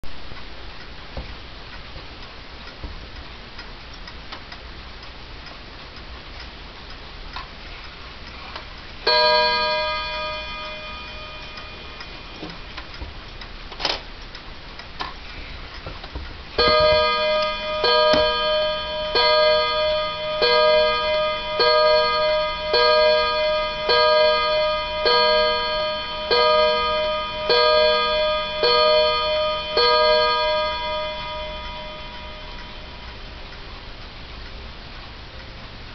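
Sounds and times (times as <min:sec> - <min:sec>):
clock ticking faintly: 0:00.0 - 0:35.9
clock gong striking: 0:09.0 - 0:13.2, 0:16.6 - 0:33.5.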